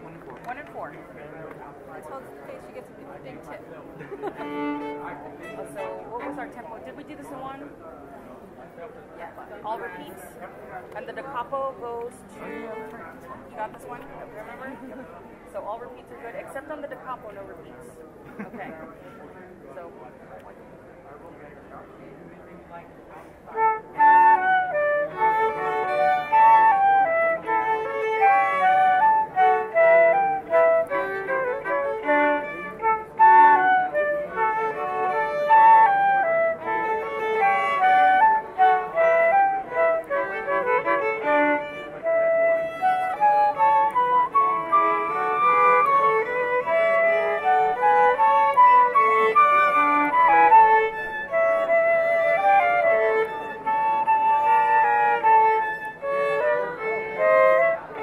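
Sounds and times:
violin playing: 4.2s - 7.4s, 12.3s - 13.0s, 23.5s - 58.0s
flute playing: 23.5s - 58.0s.

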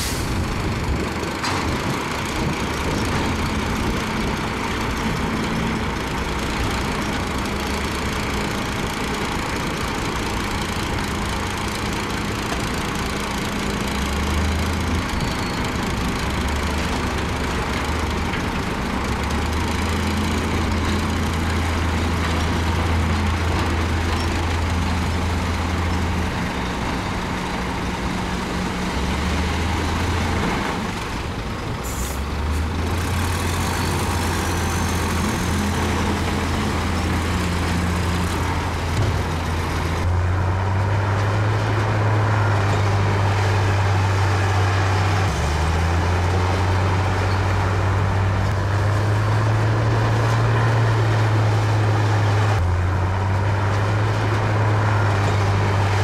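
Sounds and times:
diesel engine running hard: 0.0s - 56.0s.

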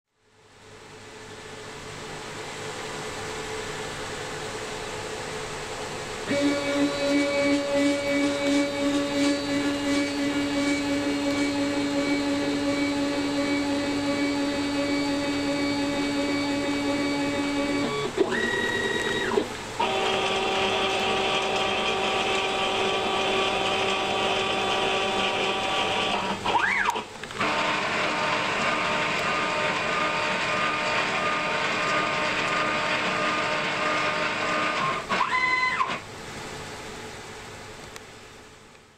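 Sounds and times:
stepper motor steady whine: 0.3s - 36.2s
whine rising and falling: 1.5s - 37.2s.

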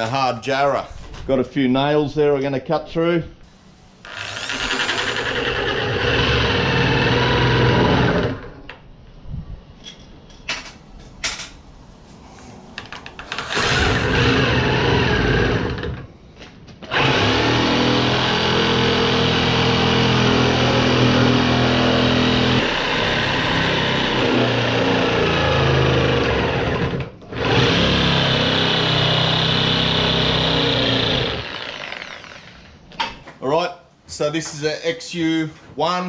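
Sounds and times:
reciprocating saw cutting timber: 4.1s - 8.6s, 13.4s - 15.9s, 16.9s - 32.6s.

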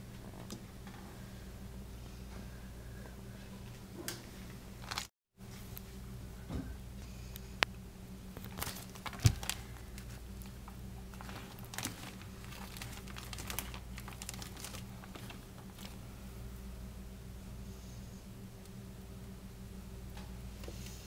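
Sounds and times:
steady low hum: 0.0s - 21.0s
bacon crinkling: 4.8s - 5.1s, 8.3s - 16.1s.

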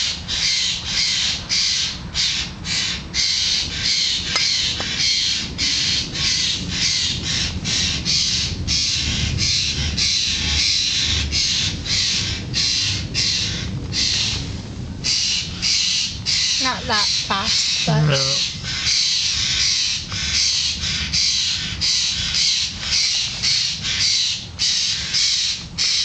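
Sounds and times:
bird harsh rasping calls: 15.0s - 26.0s.

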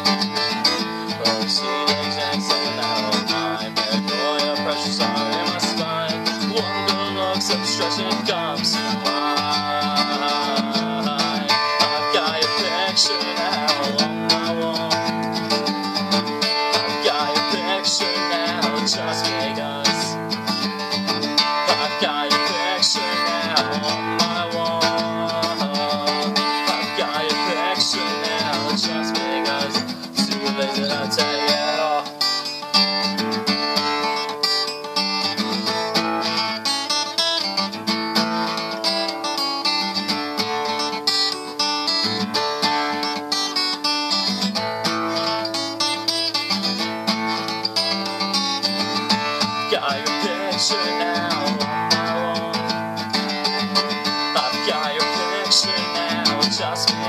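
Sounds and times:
pop-punk band with strummed guitars: 0.0s - 57.0s.

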